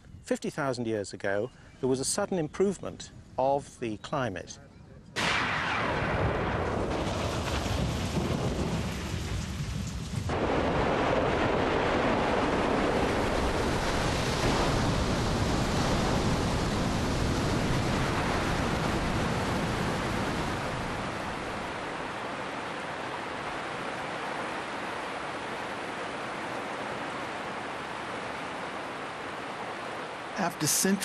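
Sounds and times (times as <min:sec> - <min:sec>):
thunder rumbling: 0:05.2 - 0:22.8
heavy rain: 0:05.2 - 0:31.0.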